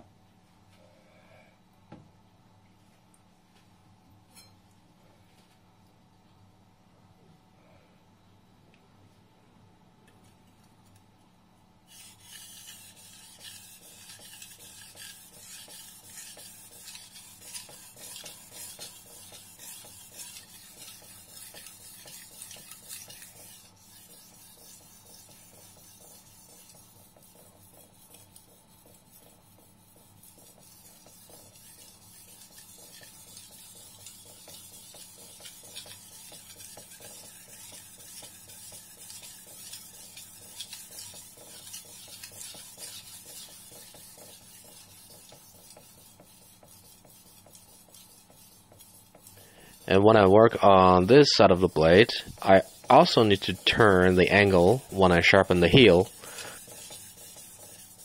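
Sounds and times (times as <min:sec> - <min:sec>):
knife sharpened on whetstone: 0:11.9 - 0:27.5, 0:30.3 - 0:49.9, 0:52.1 - 0:58.0.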